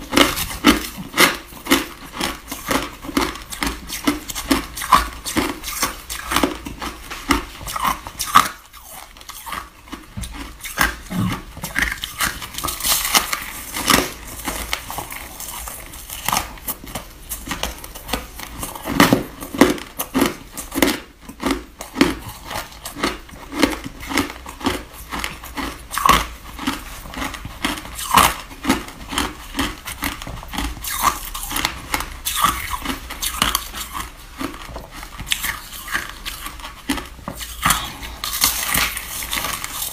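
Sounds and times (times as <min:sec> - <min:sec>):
chewing crunchy snow ice: 0:00.0 - 0:39.9.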